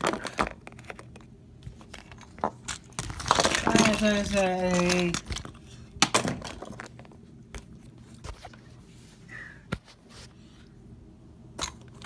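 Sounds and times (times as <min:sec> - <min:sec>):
plastic action figures clicking: 0:03.0 - 0:05.5.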